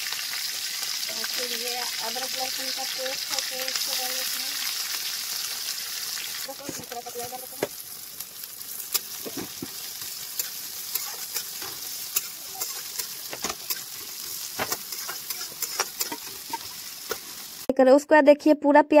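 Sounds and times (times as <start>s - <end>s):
onions sizzling in hot oil: 0.0s - 17.7s
spatula scraping pan: 8.9s - 17.5s.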